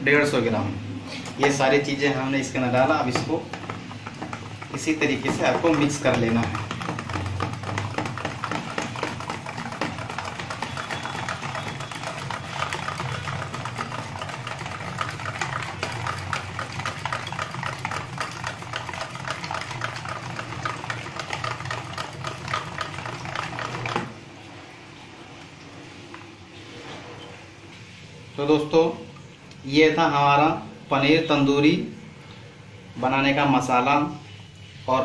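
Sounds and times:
whisk clicking in plastic bowl: 0:01.4 - 0:24.2.

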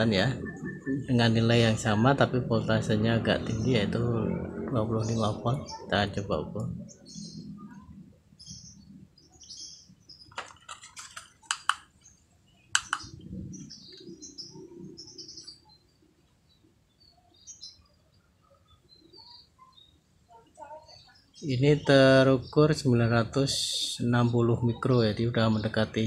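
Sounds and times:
small birds chirping: 0:00.0 - 0:26.0
sharp clicks of test clips: 0:10.3 - 0:12.0, 0:12.7 - 0:13.1.

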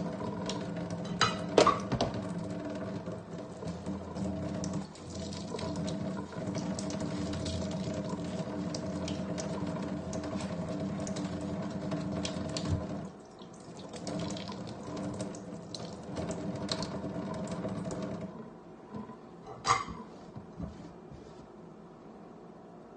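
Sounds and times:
tap running into metal sink: 0:00.4 - 0:02.3.

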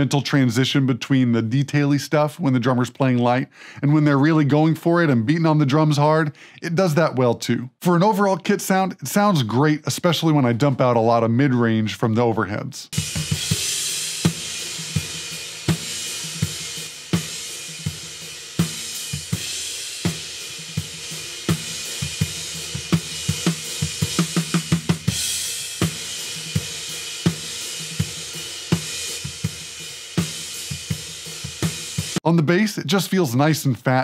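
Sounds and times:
drum kit playing a steady beat: 0:12.9 - 0:34.0.

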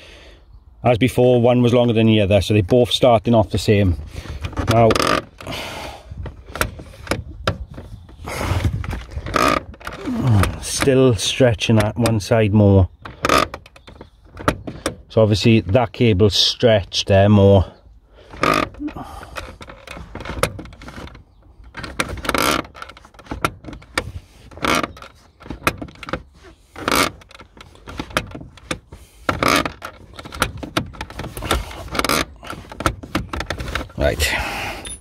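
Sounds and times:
tools clicking and knocking: 0:18.3 - 0:34.0.

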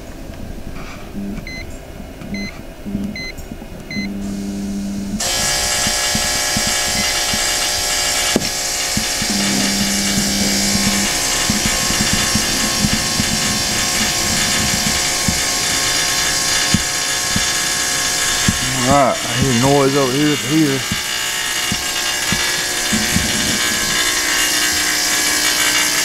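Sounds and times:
heater buzzing: 0:00.0 - 0:26.0
short electronic beeps: 0:01.3 - 0:01.7, 0:02.3 - 0:02.5, 0:03.1 - 0:04.1.

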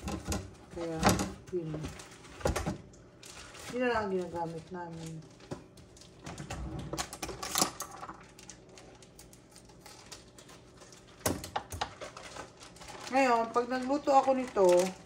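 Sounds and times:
kitchen items clicking and knocking: 0:00.0 - 0:02.9.

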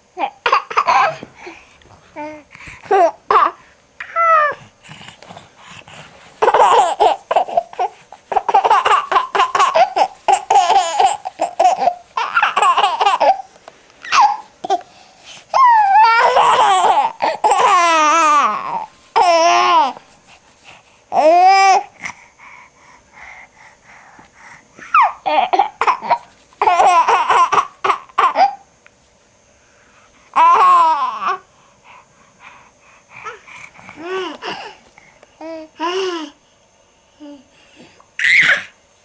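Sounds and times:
baby laughing and squealing: 0:00.4 - 0:01.2, 0:06.4 - 0:14.8, 0:15.5 - 0:19.9, 0:24.9 - 0:28.6, 0:38.2 - 0:38.7
baby babbling: 0:06.4 - 0:14.8, 0:15.6 - 0:20.0, 0:30.4 - 0:31.4.

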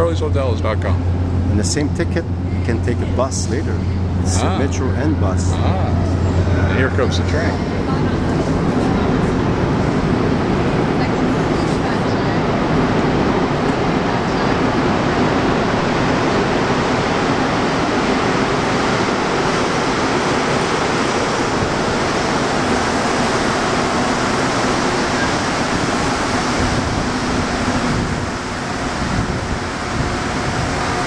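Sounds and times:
train pulling into station: 0:00.0 - 0:31.0.

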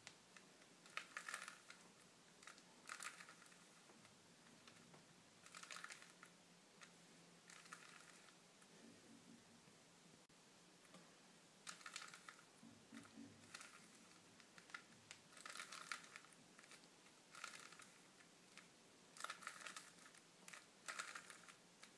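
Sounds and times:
puzzle cube faces clicking: 0:00.8 - 0:01.8, 0:11.7 - 0:21.9.

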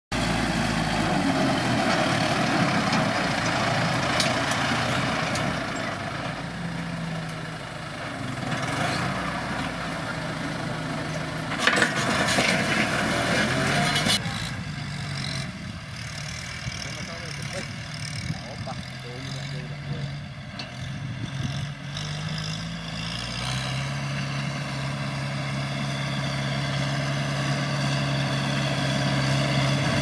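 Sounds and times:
tractor diesel engine running: 0:00.1 - 0:30.0
plough scraping and rattling: 0:00.3 - 0:06.5, 0:11.0 - 0:24.4.

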